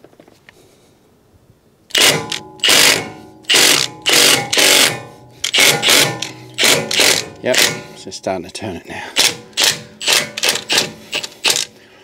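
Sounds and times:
impact wrench bursts: 0:01.9 - 0:08.0, 0:09.1 - 0:11.8.

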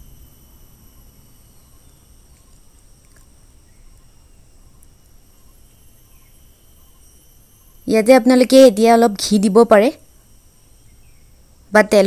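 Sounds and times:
faint steady hiss: 0:00.0 - 0:12.0
faint ticks: 0:01.7 - 0:05.5
thin high-pitched tones: 0:04.0 - 0:11.1.

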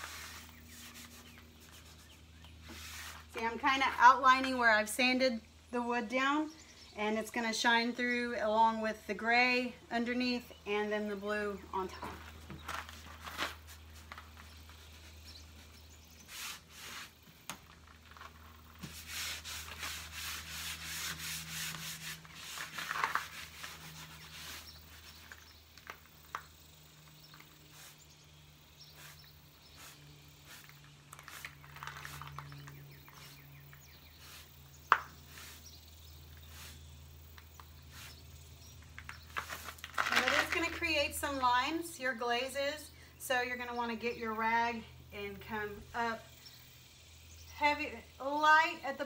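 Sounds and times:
cloth rag wiping wood: 0:00.0 - 0:03.4, 0:14.9 - 0:17.2, 0:18.8 - 0:25.1.

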